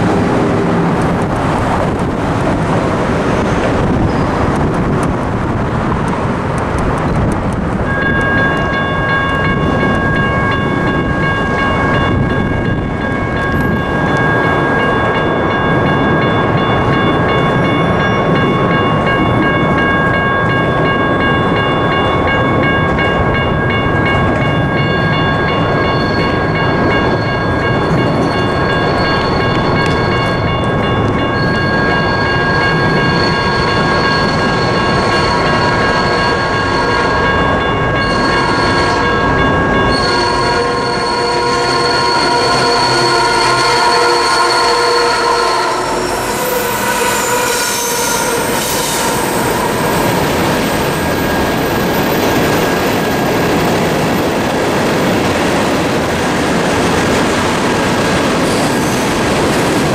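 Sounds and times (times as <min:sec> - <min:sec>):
railroad crossing bells ringing: 0:00.0 - 0:59.9
higher ringing tone: 0:07.9 - 0:18.2, 0:18.8 - 0:53.4.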